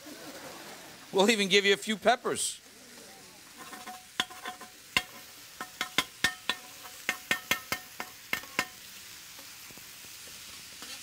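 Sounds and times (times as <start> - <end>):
meat sizzling on griddle: 2.4 - 11.0
metal spatulas clacking on griddle: 3.6 - 8.8.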